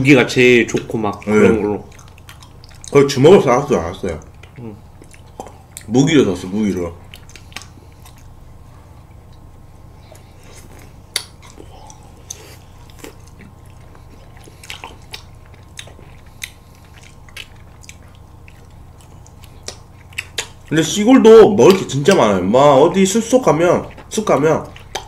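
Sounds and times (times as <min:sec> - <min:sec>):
steady low hum: 0:00.0 - 0:25.0
wet biting and chewing: 0:00.7 - 0:03.1, 0:04.1 - 0:05.9, 0:07.0 - 0:08.4, 0:09.2 - 0:20.7, 0:23.8 - 0:25.0.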